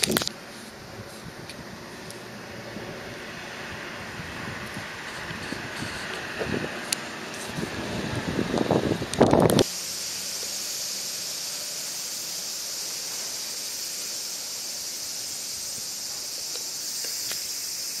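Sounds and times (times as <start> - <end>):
insects chorus: 0.0 - 18.0
loud rumble: 0.8 - 9.7
faint ticks: 15.7 - 17.5.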